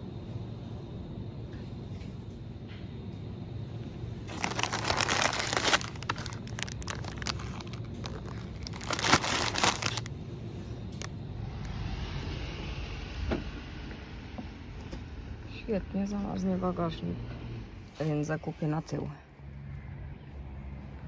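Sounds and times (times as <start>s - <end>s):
plastic packaging crinkling: 4.3s - 10.1s.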